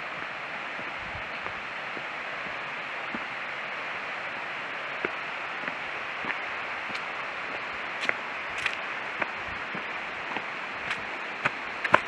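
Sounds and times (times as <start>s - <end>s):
rushing water: 0.0s - 12.0s
footsteps on gravel: 5.0s - 12.0s.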